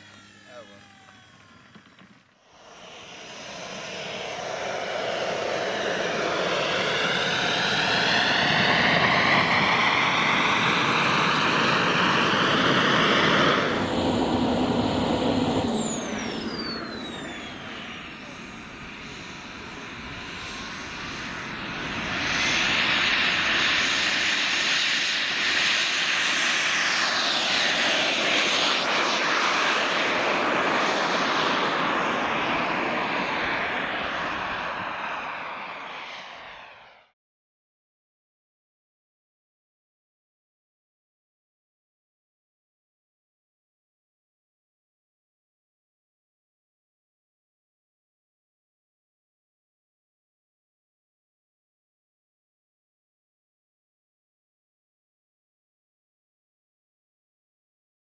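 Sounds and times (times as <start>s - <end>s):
model jet turbine whining: 0.0s - 37.1s.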